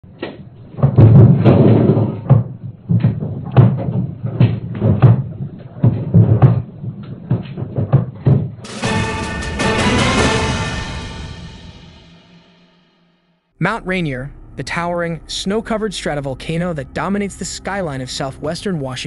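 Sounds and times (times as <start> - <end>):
earthquake low rumble: 13.6 - 19.0.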